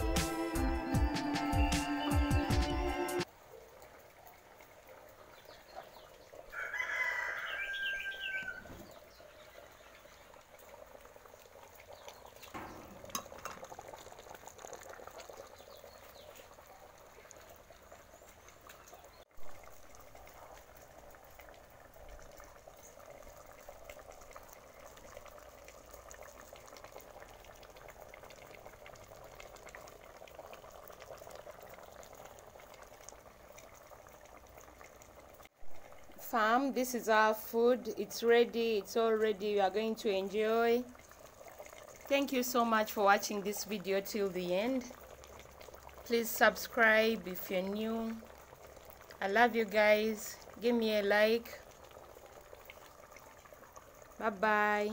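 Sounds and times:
rooster crowing: 6.5 - 8.8.

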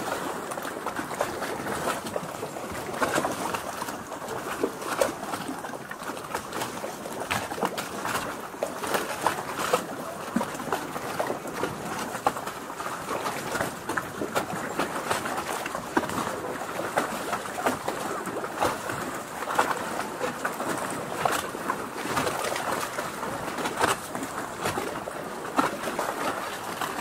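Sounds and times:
water lapping and trickling: 0.0 - 27.0.

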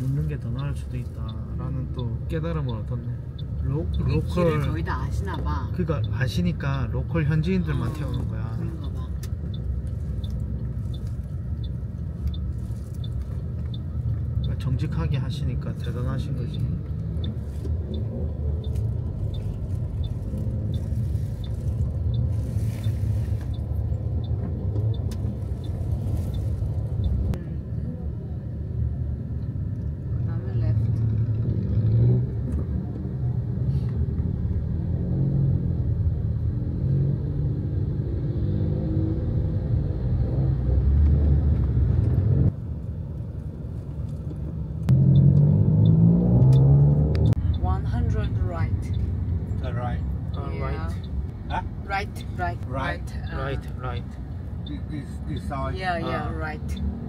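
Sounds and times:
engine and road rumble: 0.0 - 57.0
light regular ticking: 0.3 - 6.6, 7.3 - 27.4, 47.2 - 55.6.

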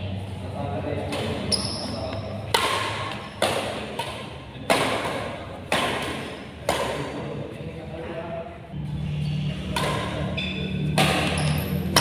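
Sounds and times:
rackets hitting a shuttlecock: 1.0 - 7.3, 9.6 - 12.0.

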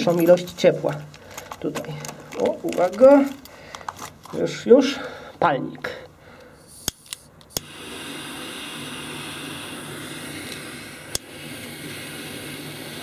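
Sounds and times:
torch igniter clicks: 6.4 - 13.0
torch flame hissing: 6.5 - 13.0.

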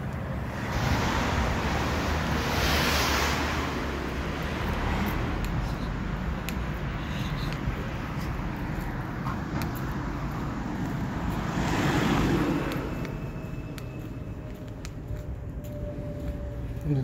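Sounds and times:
street traffic: 0.0 - 17.0
vehicle passing close by: 0.5 - 6.2.

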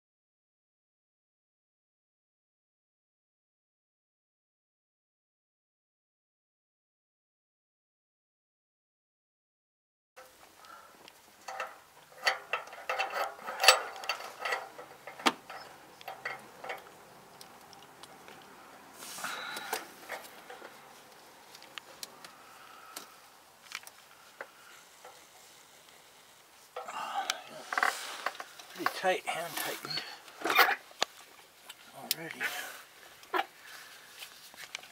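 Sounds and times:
small metallic clicks and knocks: 10.2 - 18.5, 19.5 - 25.3.

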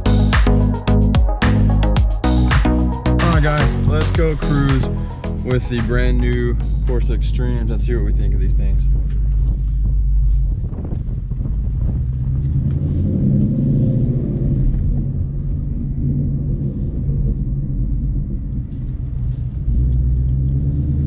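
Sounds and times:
car engine deep rumble: 0.0 - 21.0.

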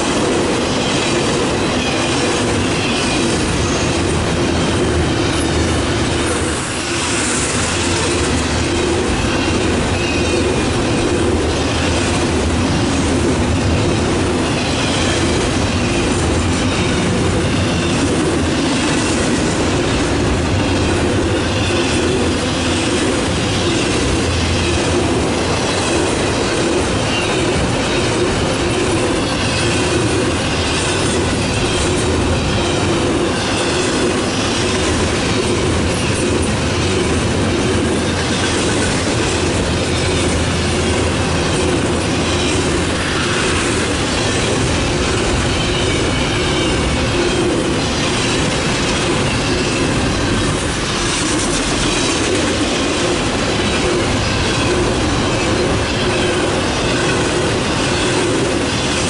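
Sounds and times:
train wheels rumbling on rails: 0.0 - 59.0
high wheel squeal: 0.7 - 10.7, 14.4 - 19.2, 37.5 - 59.0.

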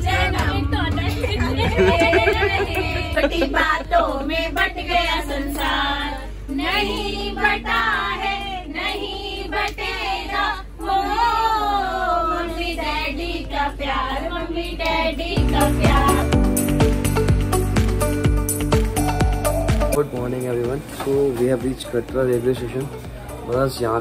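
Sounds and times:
steady low hum: 0.0 - 16.3
voices singing long notes: 0.0 - 16.3.

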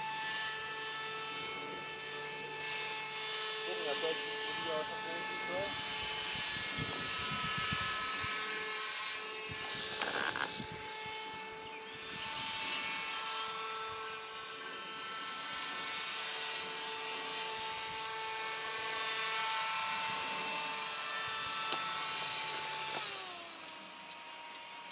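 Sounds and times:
electric motor and propeller whine: 0.0 - 24.9.

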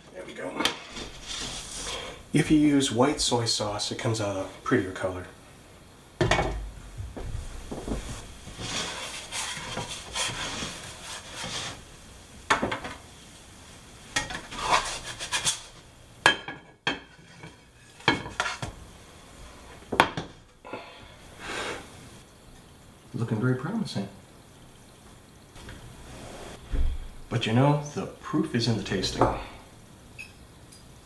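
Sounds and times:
spatula scraping a frying pan: 0.6 - 2.2, 8.4 - 11.9, 14.1 - 15.8, 16.9 - 18.8.

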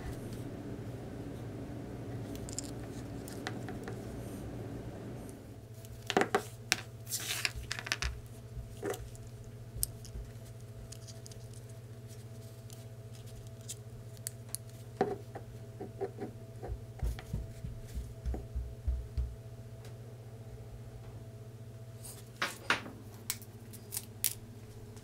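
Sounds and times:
steady low hum: 0.0 - 25.0
wires rubbing: 2.2 - 5.2, 5.8 - 14.9.

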